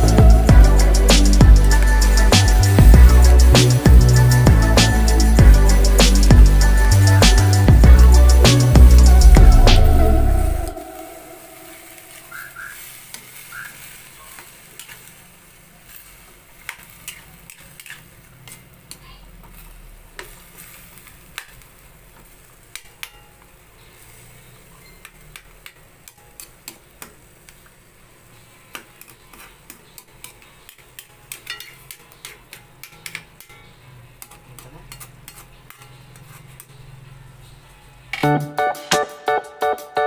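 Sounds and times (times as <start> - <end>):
faint sizzle: 0.0 - 38.6
spatula scraping a steel pan: 29.0 - 36.8.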